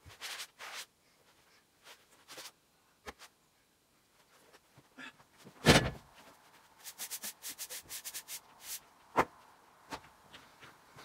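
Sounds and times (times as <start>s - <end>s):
hand brush sweeping wood: 6.5s - 8.9s.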